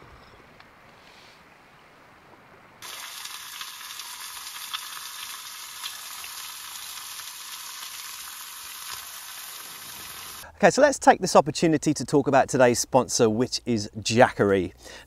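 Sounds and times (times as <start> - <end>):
sausages sizzling in a frying pan: 2.8 - 10.4.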